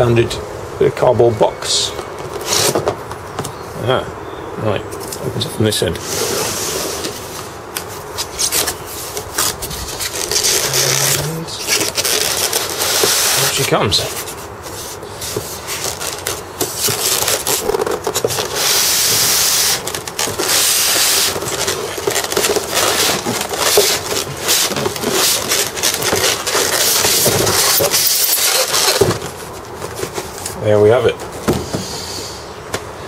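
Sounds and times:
foam and cardboard scraping: 0:05.8 - 0:32.3
rustles and knocks: 0:07.0 - 0:30.6.

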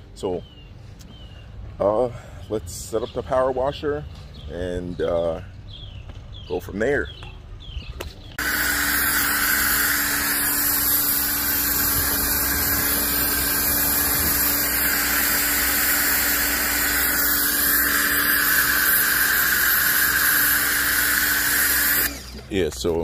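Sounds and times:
water jet hissing on car: 0:08.4 - 0:22.2
pressure washer pump humming: 0:08.4 - 0:23.0.

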